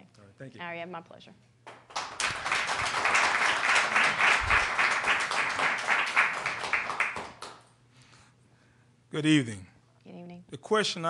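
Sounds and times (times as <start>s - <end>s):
audience applauding: 1.7s - 7.7s.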